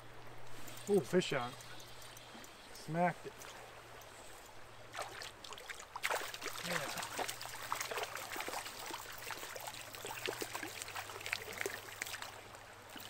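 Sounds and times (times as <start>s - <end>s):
shallow river running: 0.0s - 13.0s
fish splashing at surface: 4.9s - 13.0s.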